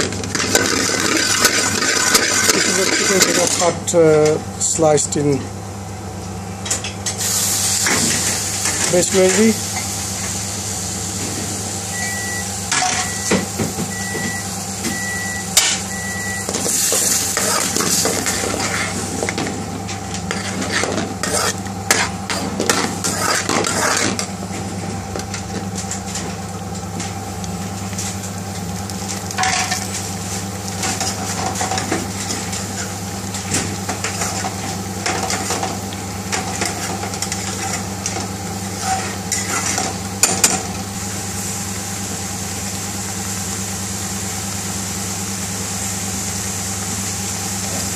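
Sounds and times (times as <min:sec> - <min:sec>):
gravy sizzling and bubbling: 0:00.0 - 0:47.9
short high beeps: 0:11.9 - 0:13.3
spoon scraping metal pan: 0:23.0 - 0:24.2.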